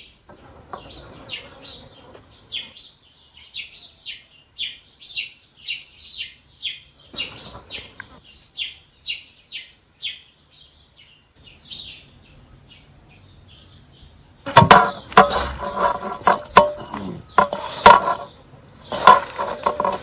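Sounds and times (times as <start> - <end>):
small birds chirping: 0.0 - 20.0
metal basin ringing: 14.5 - 18.3, 18.9 - 20.0
tripe stirred in metal basin: 14.5 - 18.3, 18.9 - 20.0.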